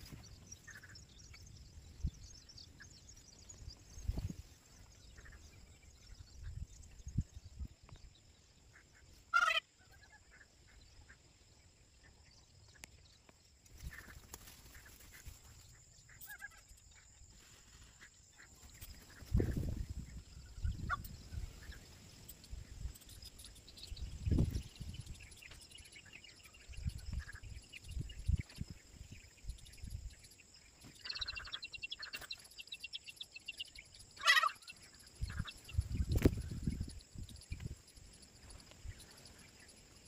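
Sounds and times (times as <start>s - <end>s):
peafowl calling: 9.3s - 10.5s, 20.5s - 22.0s, 34.2s - 35.7s.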